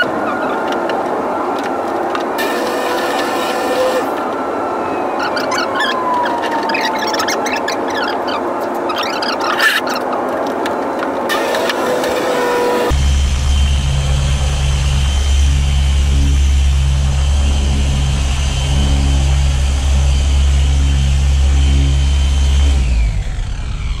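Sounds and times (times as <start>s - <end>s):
electric polisher running: 2.4s - 4.3s, 11.3s - 24.0s
motor winding down: 2.4s - 4.3s, 11.3s - 24.0s.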